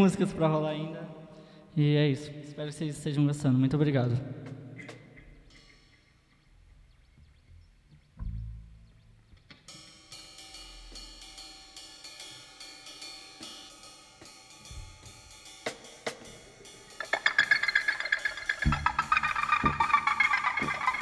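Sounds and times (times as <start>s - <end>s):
cymbals and hi-hat tapping: 9.7s - 21.0s.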